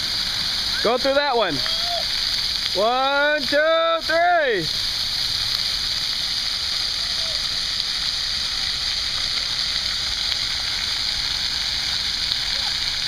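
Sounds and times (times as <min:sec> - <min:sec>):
water jets splashing on concrete: 0:00.0 - 0:13.0.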